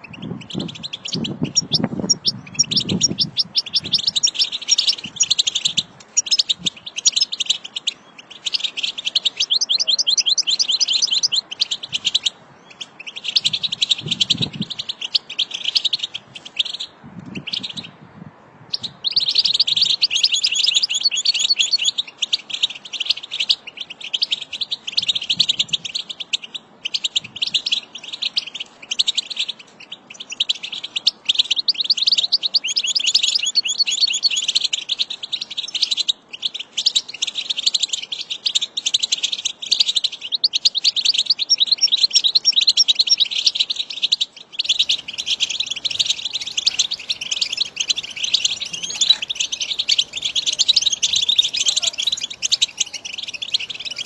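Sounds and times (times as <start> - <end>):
goldfinch twittering song: 0.0 - 17.9, 44.4 - 54.0.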